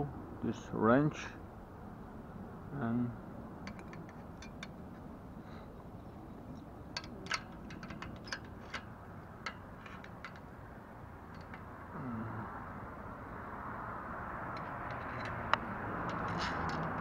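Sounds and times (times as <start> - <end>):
steady background noise: 0.0 - 17.0
small metallic clicks and taps: 3.6 - 5.1, 6.6 - 10.6, 11.2 - 11.7, 14.5 - 17.0.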